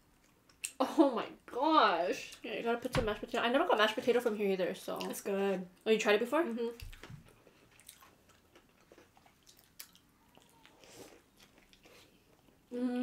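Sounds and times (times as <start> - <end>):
sandwich being chewed: 6.8 - 12.7
person humming mmm: 12.7 - 13.0.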